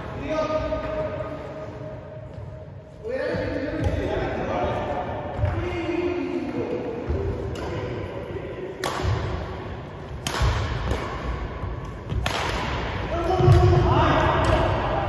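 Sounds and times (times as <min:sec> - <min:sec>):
racket striking shuttlecock: 0:07.1 - 0:08.0, 0:08.6 - 0:13.6.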